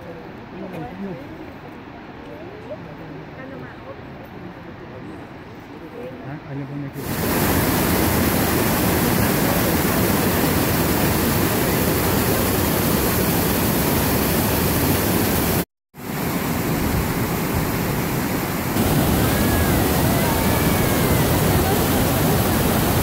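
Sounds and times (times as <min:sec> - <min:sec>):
waterfall rushing: 0:07.0 - 0:23.0.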